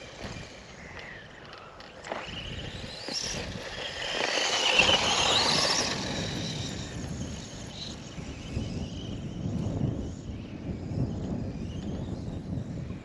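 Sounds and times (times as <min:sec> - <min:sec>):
toy truck electric motor whining: 0:00.0 - 0:09.7.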